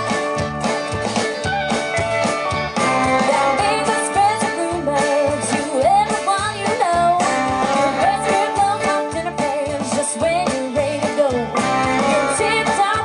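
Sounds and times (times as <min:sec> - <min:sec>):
country band playing: 0:00.0 - 0:13.0
drum kit beat: 0:00.0 - 0:13.0
fiddle: 0:00.0 - 0:13.0
guitars: 0:00.0 - 0:13.0
woman singing: 0:03.2 - 0:13.0.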